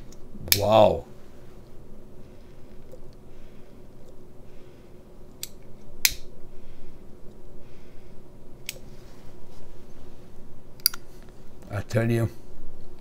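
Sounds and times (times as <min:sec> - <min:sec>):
lighter clicks: 0:05.4 - 0:06.3.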